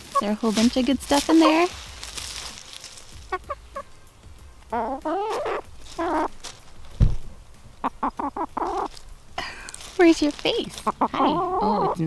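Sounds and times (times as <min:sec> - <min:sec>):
chickens chirping and calling: 0:00.0 - 0:12.0
low thump: 0:07.0 - 0:07.4.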